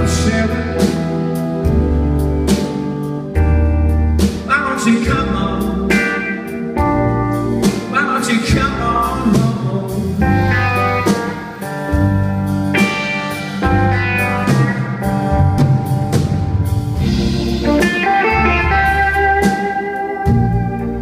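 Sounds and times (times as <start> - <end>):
electric guitar bending notes: 0.0 - 9.0, 9.9 - 21.0
drum kit: 0.0 - 21.0
electric bass: 0.0 - 21.0.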